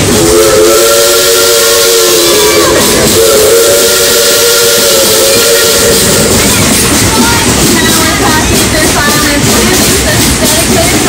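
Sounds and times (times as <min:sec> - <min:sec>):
steam locomotive chime whistle: 0:00.0 - 0:08.5
steady steam hiss: 0:00.0 - 0:11.0.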